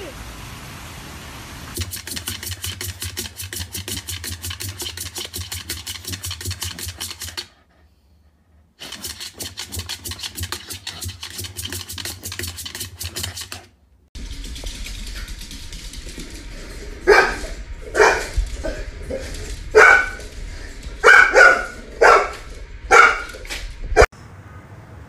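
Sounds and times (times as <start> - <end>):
dog claws scratching hard surface: 1.8 - 7.6, 8.8 - 20.4.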